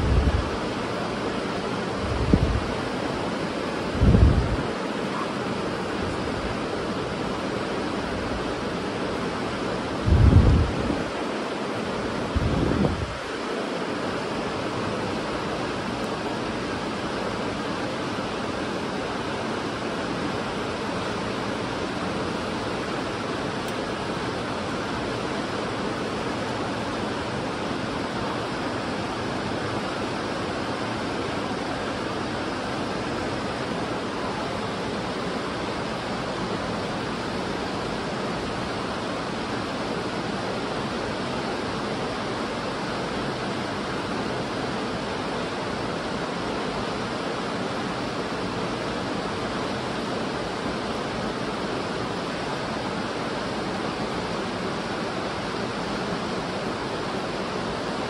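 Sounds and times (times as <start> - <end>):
fast-flowing river rushing: 0.0 - 58.0.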